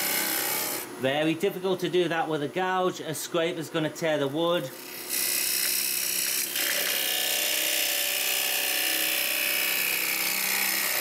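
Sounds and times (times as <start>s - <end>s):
turning tool cutting wood: 0.0s - 1.0s, 4.7s - 11.0s.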